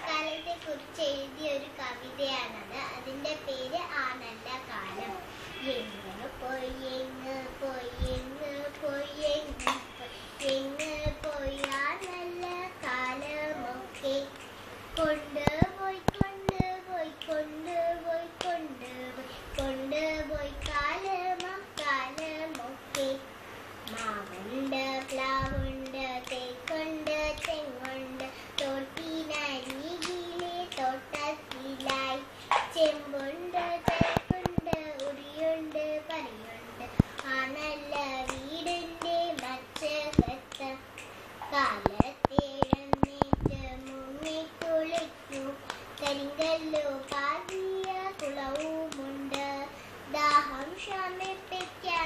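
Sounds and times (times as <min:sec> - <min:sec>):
sharp claps or clicks: 0:09.6 - 0:12.6, 0:14.0 - 0:17.5, 0:20.6 - 0:23.2, 0:23.8 - 0:36.2, 0:36.9 - 0:41.2, 0:41.8 - 0:49.5, 0:50.3 - 0:51.8.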